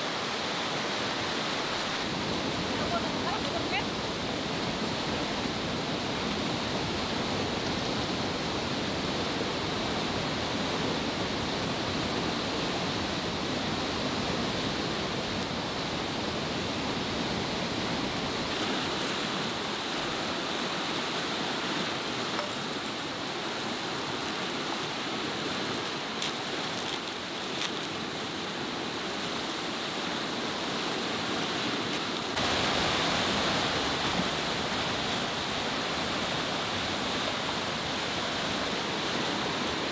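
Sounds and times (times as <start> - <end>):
stream flowing over rocks: 0.0 - 39.9
wood fire crackling: 22.3 - 29.3.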